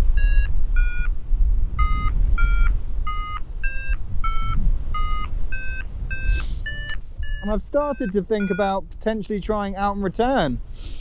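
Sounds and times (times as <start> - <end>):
variometer beeping: 0.0 - 1.2, 1.8 - 8.8
wind on microphone: 0.0 - 11.0.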